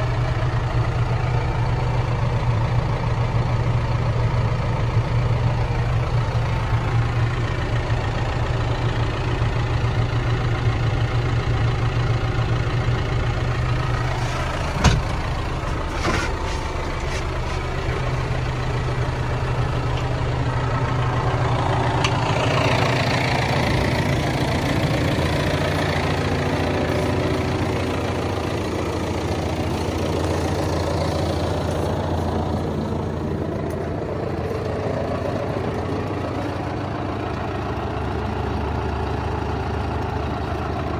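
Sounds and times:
diesel engine idling: 0:00.0 - 0:40.9.

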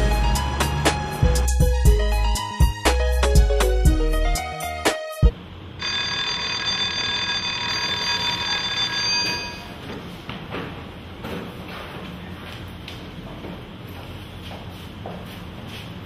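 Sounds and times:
electric school bell ringing: 0:05.8 - 0:09.8.

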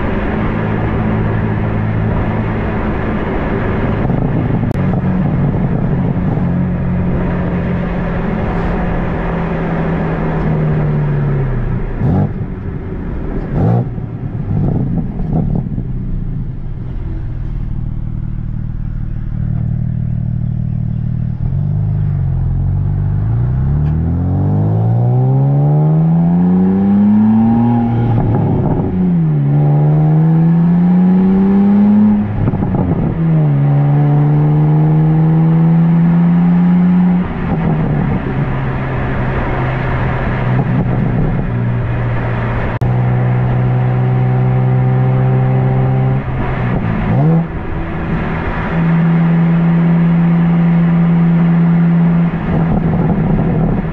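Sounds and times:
car engine and exhaust: 0:00.0 - 0:53.9.

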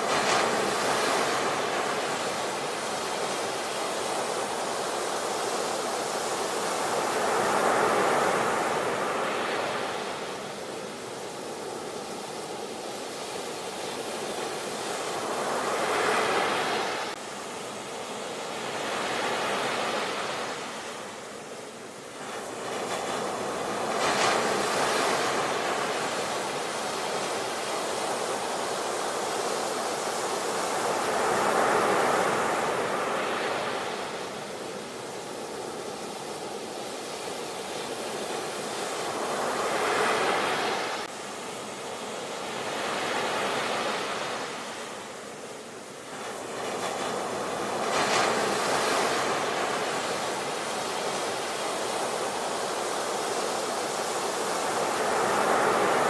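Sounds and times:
sea surf breaking: 0:22.1 - 0:56.0.

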